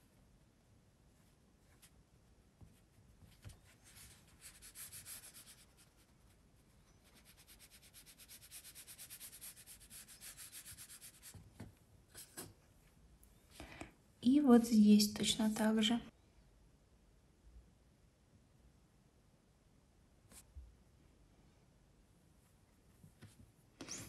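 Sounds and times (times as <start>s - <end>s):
brush rubbing on paper: 2.7s - 11.4s.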